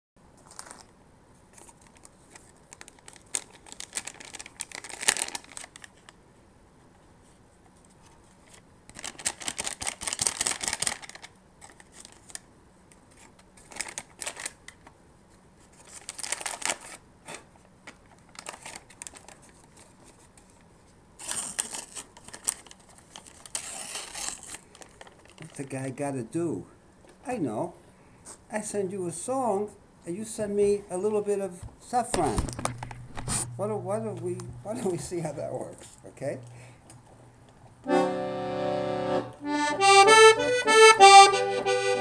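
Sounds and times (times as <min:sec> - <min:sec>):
paper and foil wrapping crinkling: 0:00.4 - 0:00.9, 0:01.5 - 0:06.2, 0:08.3 - 0:12.4, 0:13.0 - 0:14.9, 0:15.6 - 0:25.9.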